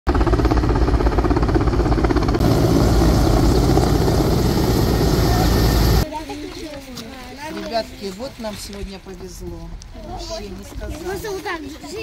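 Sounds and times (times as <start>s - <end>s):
helicopter engines: 0.1s - 6.0s
helicopter rotor beat: 0.1s - 6.0s.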